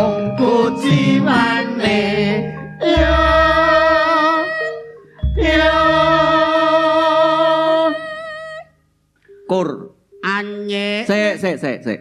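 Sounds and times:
person singing long held notes: 0.0s - 8.6s
musical accompaniment: 0.0s - 10.2s.

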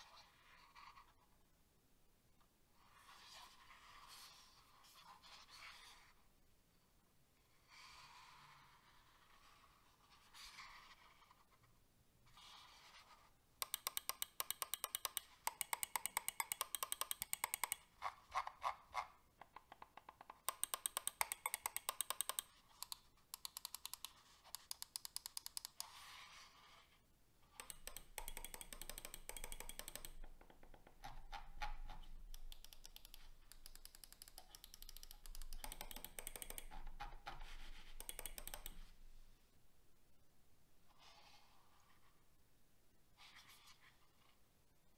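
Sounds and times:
mouse buttons clicking: 13.6s - 17.9s, 19.4s - 26.0s, 27.5s - 39.0s.

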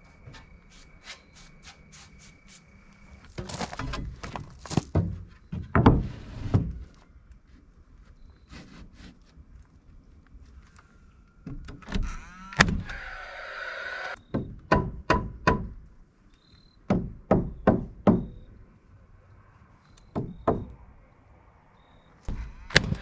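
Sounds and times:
nail gun whir: 12.0s - 14.2s, 22.3s - 23.0s
hammer striking nails: 14.3s - 15.8s, 16.9s - 18.4s
nail gun firing: 22.3s - 23.0s.

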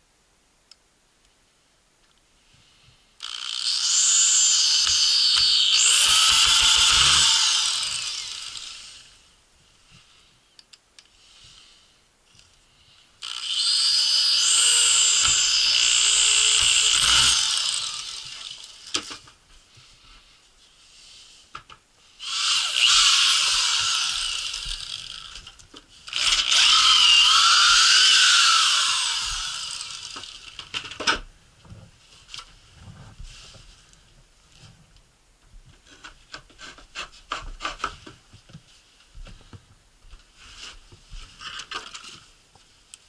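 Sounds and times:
electric drill boring into wood: 3.2s - 9.2s, 13.2s - 19.2s, 22.2s - 30.8s.

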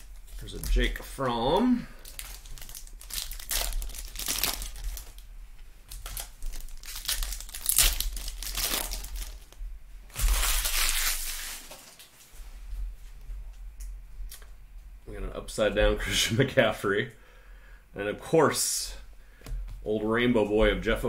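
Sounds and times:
foil wrappers crinkling and tearing: 0.0s - 5.3s, 5.9s - 12.1s.

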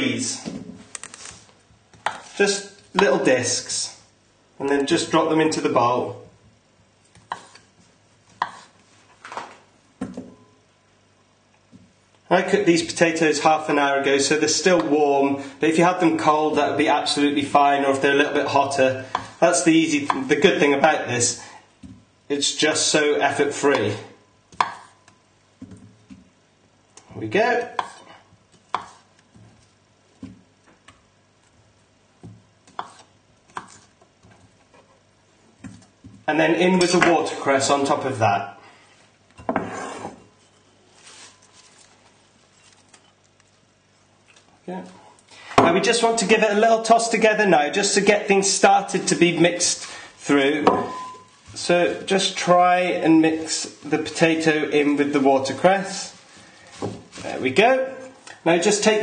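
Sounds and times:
knife chopping on a board: 8.4s - 8.7s, 24.5s - 25.0s, 27.8s - 28.1s, 28.7s - 29.0s, 32.2s - 33.8s.

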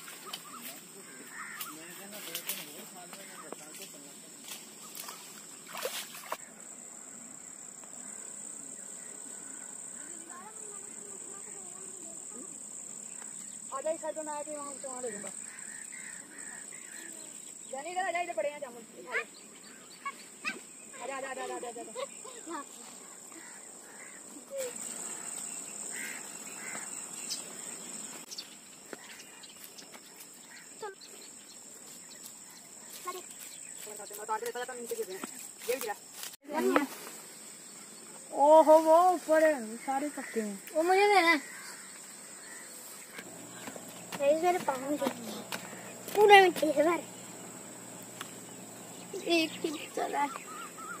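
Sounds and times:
insect chirring: 0.0s - 51.0s.

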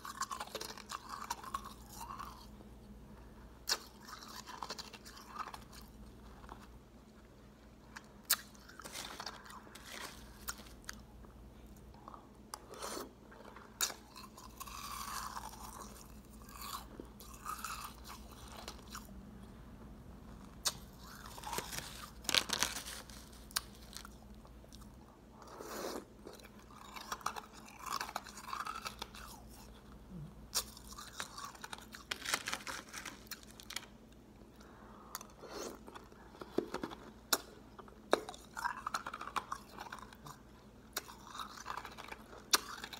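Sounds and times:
ice being chewed: 0.0s - 2.5s, 3.6s - 6.7s, 35.1s - 42.9s.

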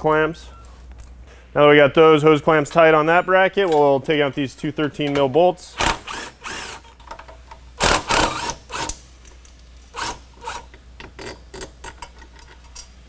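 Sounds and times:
cordless impact gun bursts: 5.8s - 6.8s, 7.8s - 8.9s.

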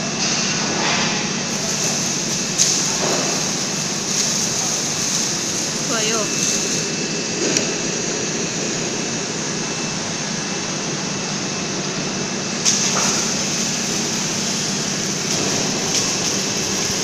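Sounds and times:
welding machine whirring and hissing: 0.0s - 17.0s.

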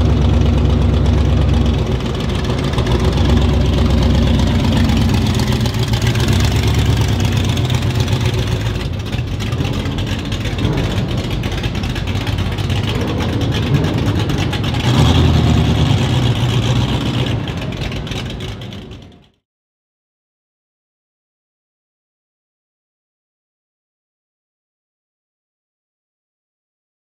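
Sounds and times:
car engine revving: 0.0s - 19.3s.

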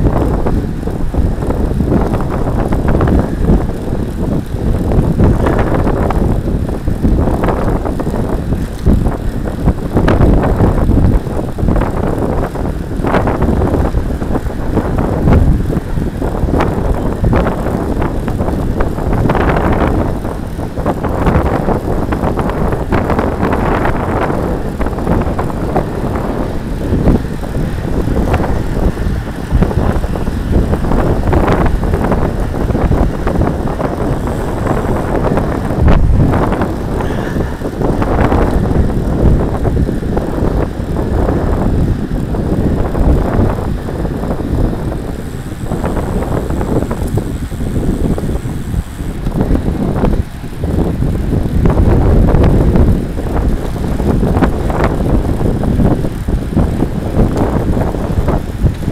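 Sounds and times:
bicycle road noise: 0.0s - 58.9s
wind buffeting microphone: 0.0s - 58.9s.

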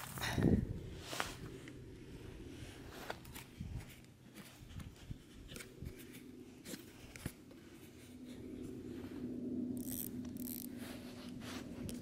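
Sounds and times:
fishing reel clicks and ticks: 9.8s - 10.7s.

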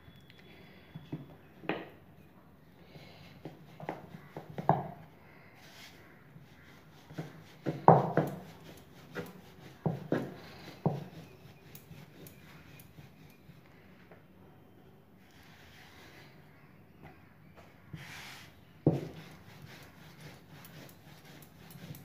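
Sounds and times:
rolling pin knocking on wooden board: 7.1s - 8.5s, 18.8s - 19.2s.

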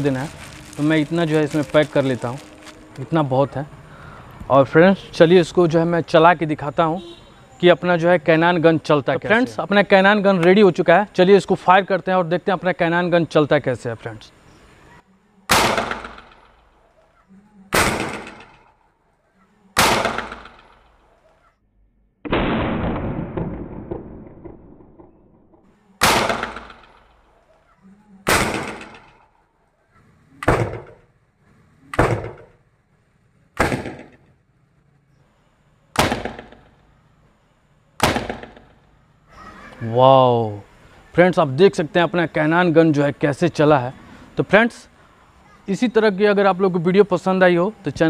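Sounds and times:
cannon bangs with echo: 38.0s - 38.8s.

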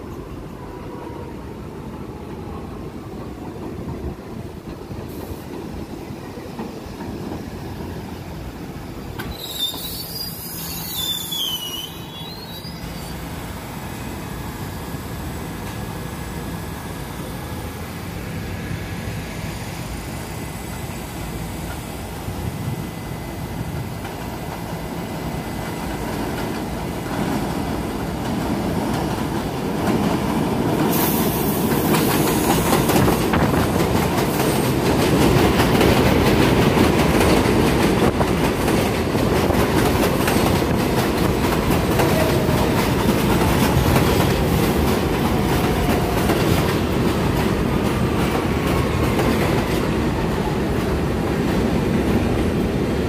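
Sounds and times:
faint wheel squeal: 9.2s - 13.3s.

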